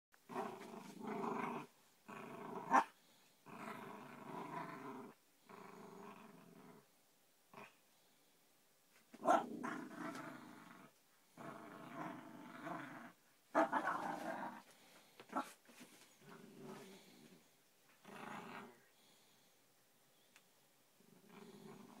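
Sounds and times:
puppy growling in play: 0.3s - 6.9s, 7.5s - 7.8s, 9.2s - 14.7s, 16.2s - 19.0s, 21.0s - 22.0s.

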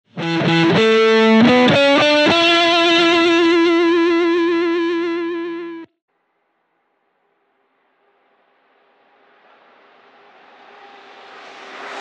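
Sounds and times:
distorted electric guitar jingle: 0.1s - 5.9s.

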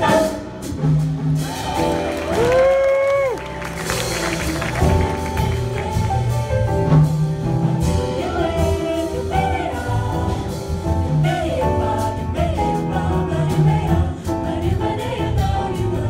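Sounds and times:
audience clapping: 1.6s - 6.5s
choir singing in harmony: 4.1s - 16.0s.

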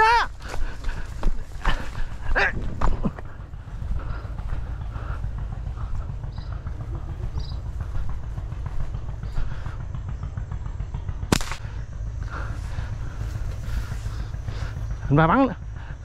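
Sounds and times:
steady low rumble: 0.0s - 16.0s
gunshot: 11.3s - 11.6s.

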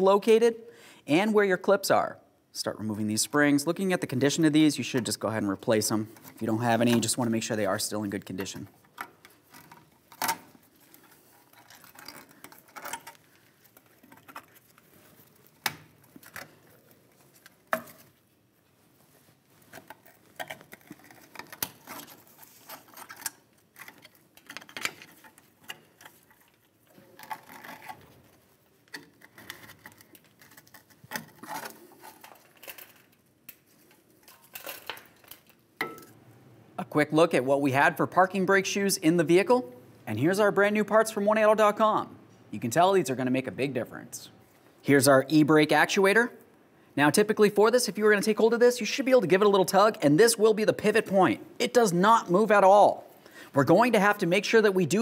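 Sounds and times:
metallic clicks and scrapes: 8.5s - 18.2s, 19.6s - 35.6s.

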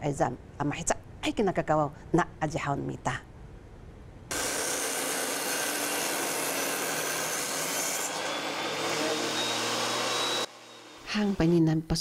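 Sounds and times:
table saw cutting wood: 4.3s - 11.6s.

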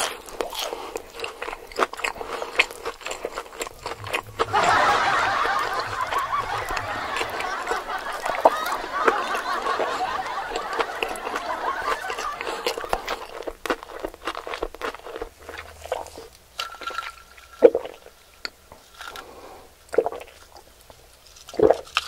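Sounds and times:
person chewing greens: 0.0s - 4.5s, 5.6s - 22.0s
indistinct voices: 3.6s - 13.0s.

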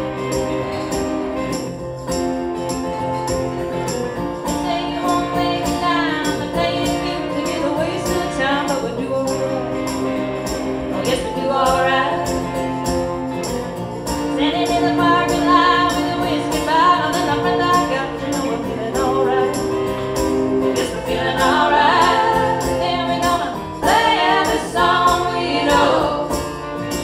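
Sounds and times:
strummed guitars: 0.0s - 27.0s
women singing in harmony: 4.6s - 13.0s, 14.3s - 27.0s.

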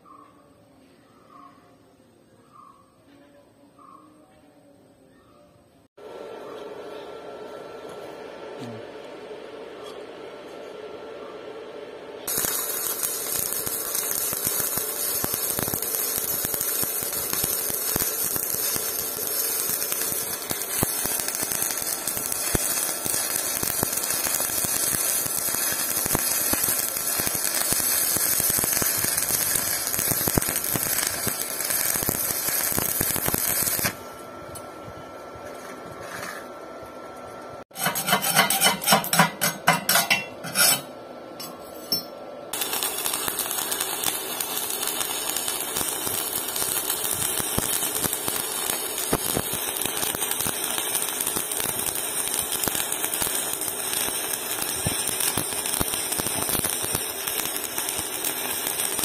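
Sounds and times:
welding arc crackling: 12.2s - 34.7s, 37.7s - 40.9s, 42.5s - 59.0s
chipping tool tapping metal: 12.3s - 34.0s, 37.7s - 59.0s.

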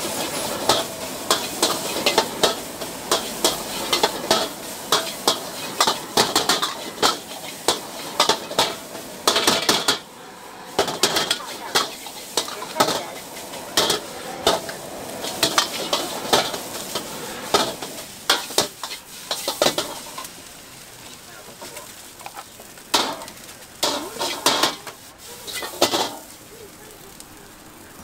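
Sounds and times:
rice sizzling: 0.0s - 28.0s
metal ladle clanking on a wok: 22.9s - 24.9s.

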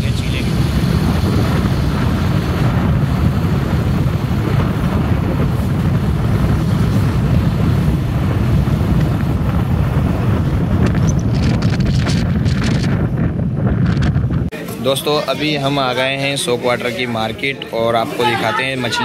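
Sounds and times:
wind buffeting microphone: 0.0s - 14.8s.

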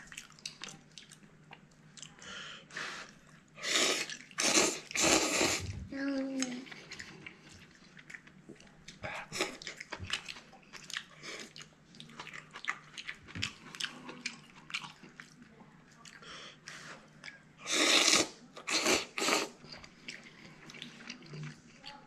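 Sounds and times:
man chewing and slurping noodles: 2.7s - 5.8s, 6.6s - 15.4s, 16.0s - 21.8s.

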